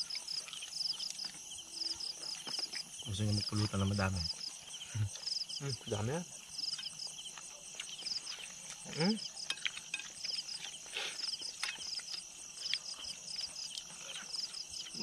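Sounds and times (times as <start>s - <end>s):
insects chirping: 0.0s - 15.0s
clicks of eating from plates: 2.2s - 3.0s, 6.7s - 15.0s.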